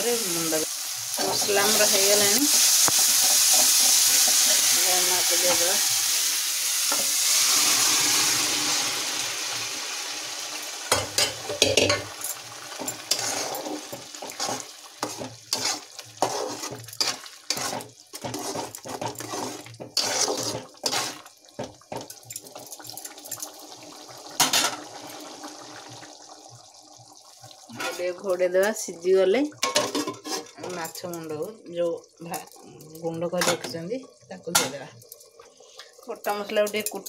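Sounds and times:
sizzling in a metal pan: 0:00.0 - 0:37.0
metal ladle clinking and scraping pan: 0:10.9 - 0:22.4, 0:24.4 - 0:24.8, 0:29.6 - 0:31.1.

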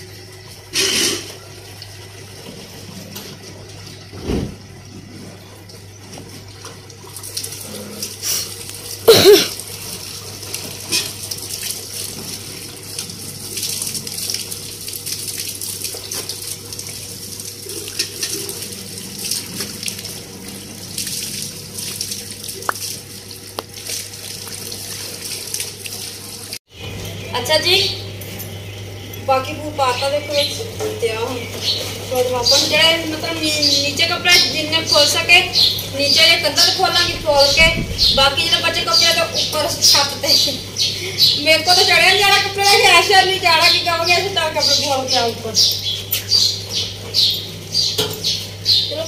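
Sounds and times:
tap water splashing on clothes: 0:03.4 - 0:05.1, 0:05.7 - 0:20.3, 0:20.9 - 0:26.6.

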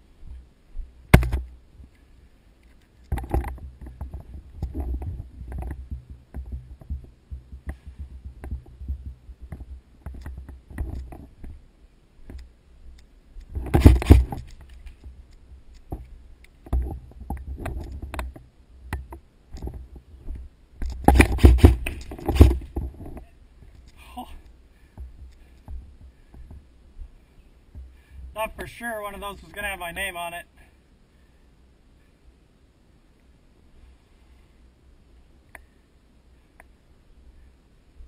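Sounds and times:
footsteps: 0:02.8 - 0:11.6.

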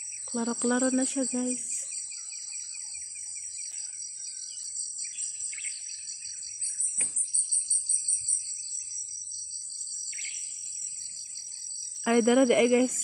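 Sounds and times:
birds chirping: 0:00.0 - 0:13.0
insects chirping: 0:00.0 - 0:13.0
pulsing insect call: 0:00.0 - 0:13.0.

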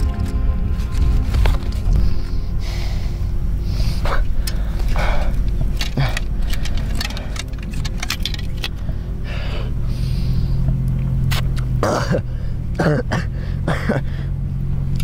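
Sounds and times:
low steady drone: 0:00.0 - 0:15.0
heavy breaths: 0:01.7 - 0:10.9, 0:12.2 - 0:14.5.

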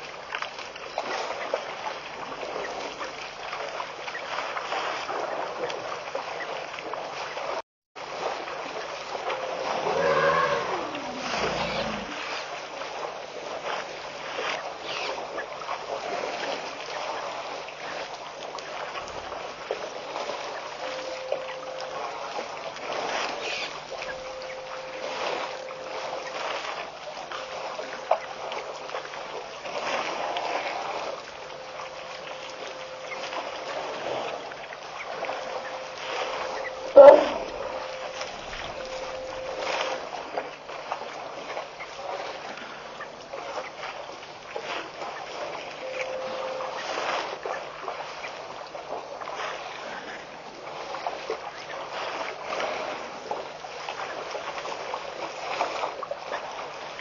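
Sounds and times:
elephants drinking and splashing: 0:00.0 - 0:57.0
waterhole ambience hiss: 0:00.0 - 0:57.0
elephant call falling in pitch: 0:09.6 - 0:12.2, 0:36.8 - 0:38.2.

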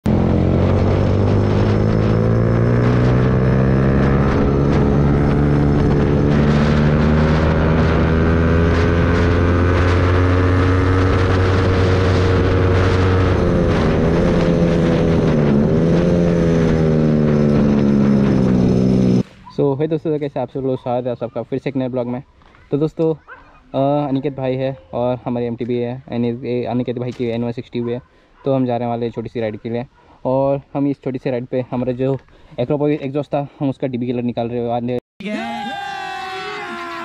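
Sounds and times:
motorcycle engine running: 0:00.1 - 0:19.4.

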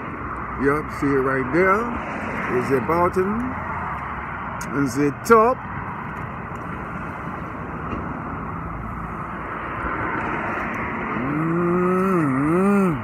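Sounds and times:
passing traffic: 0:00.0 - 0:13.0
man humming: 0:11.2 - 0:13.0.

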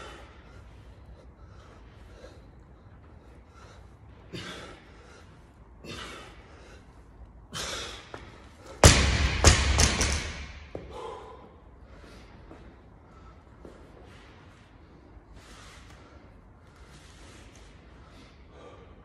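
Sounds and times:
barbell thudding on rubber floor: 0:08.8 - 0:10.8.

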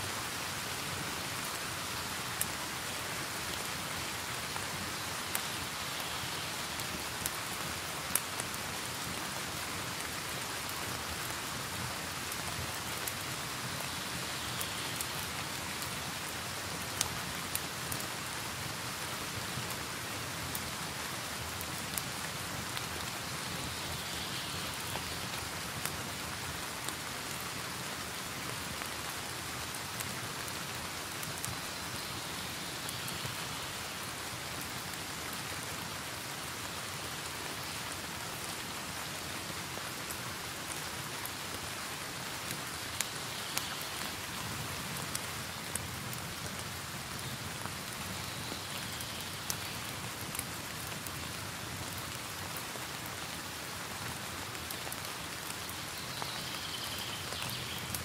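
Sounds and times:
wood fire crackling: 0:06.7 - 0:18.7, 0:42.4 - 0:52.5.

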